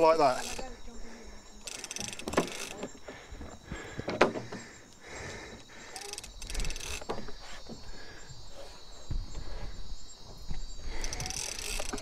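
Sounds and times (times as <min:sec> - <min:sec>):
insect chorus: 0:00.0 - 0:12.0.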